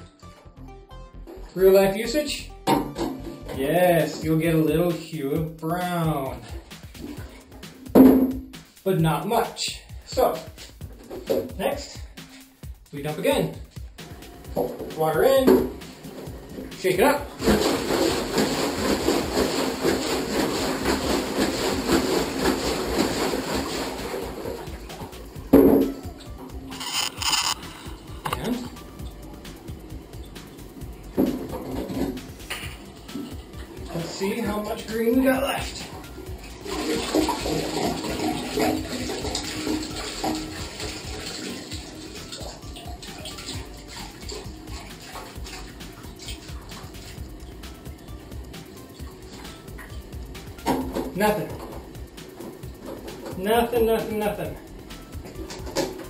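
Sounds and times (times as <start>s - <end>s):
water sloshing in plastic tank: 14.5s - 25.9s, 31.2s - 47.3s.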